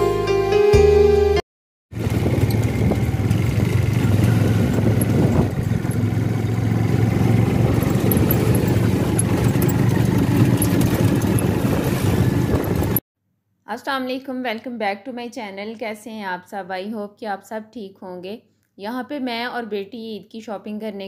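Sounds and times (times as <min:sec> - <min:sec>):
road noise: 0:02.0 - 0:13.0
vehicle engine low drone: 0:02.0 - 0:13.0.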